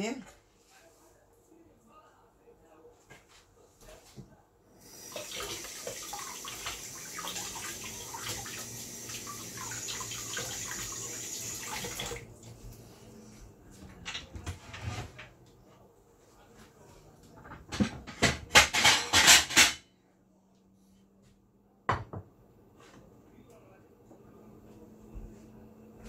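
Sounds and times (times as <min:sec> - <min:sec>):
water running and splashing: 0:05.0 - 0:12.3.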